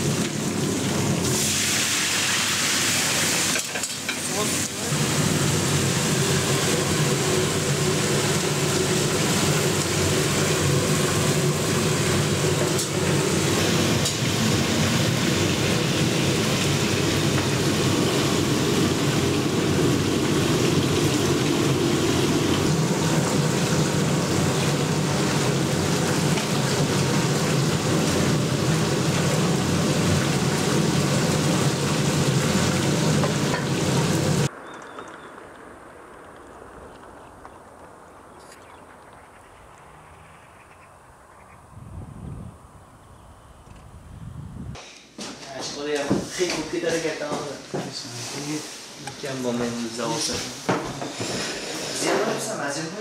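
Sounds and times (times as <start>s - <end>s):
fish sizzling in hot oil: 0.0s - 34.5s.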